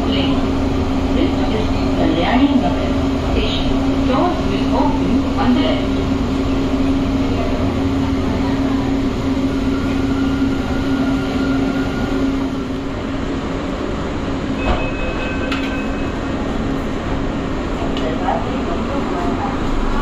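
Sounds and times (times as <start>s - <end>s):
train electric hum: 0.0s - 20.0s
high-pitched door chime: 14.6s - 16.1s.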